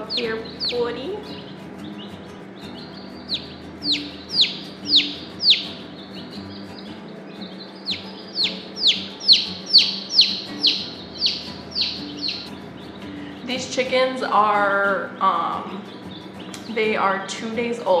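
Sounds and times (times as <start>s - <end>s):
chick peeping loudly: 0.0s - 13.0s.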